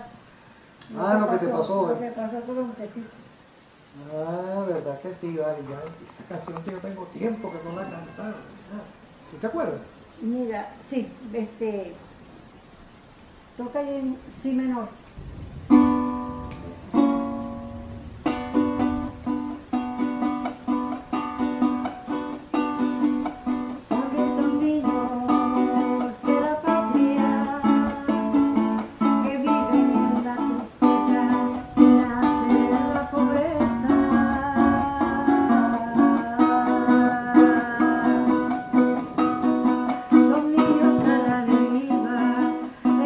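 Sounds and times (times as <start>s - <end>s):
small acoustic string instrument strummed: 15.7s - 43.0s.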